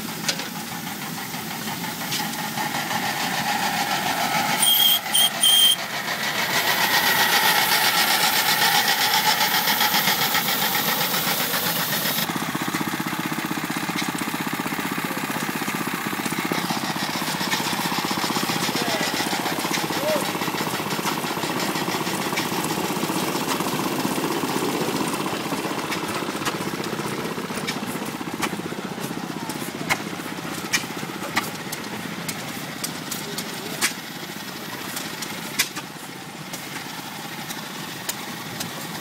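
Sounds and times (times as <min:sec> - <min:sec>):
other vintage engines running: 0:00.0 - 0:39.0
steam engine fast beat: 0:00.0 - 0:39.0
short high whistle toots: 0:04.5 - 0:05.8.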